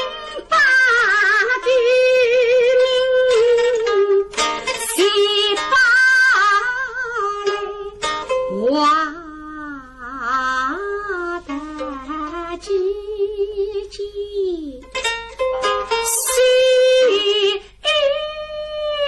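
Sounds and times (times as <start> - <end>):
woman singing: 0.0 - 14.9, 15.9 - 19.0
plucked lutes: 0.0 - 19.0.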